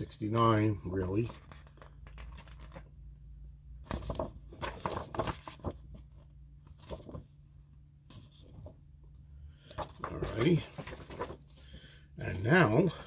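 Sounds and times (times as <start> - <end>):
paper and cardboard rustling: 1.0 - 3.0, 3.8 - 7.4, 9.6 - 13.0.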